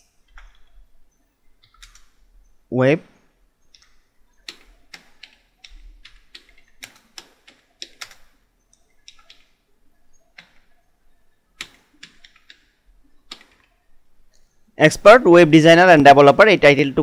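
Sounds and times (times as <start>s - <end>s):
keystrokes on computer keyboard: 1.6s - 2.2s, 3.7s - 10.8s, 11.6s - 14.4s.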